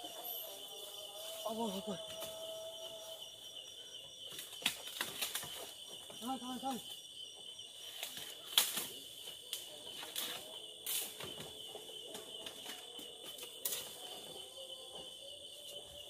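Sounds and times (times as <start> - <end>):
crickets trilling: 0.0 - 16.0
knocks and rustles among bamboo: 4.2 - 7.0, 7.7 - 16.0.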